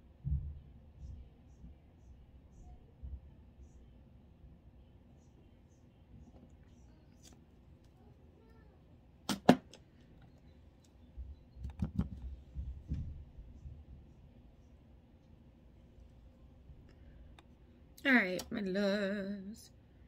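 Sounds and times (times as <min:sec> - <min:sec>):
items knocking on a tabletop: 0:11.6 - 0:13.2.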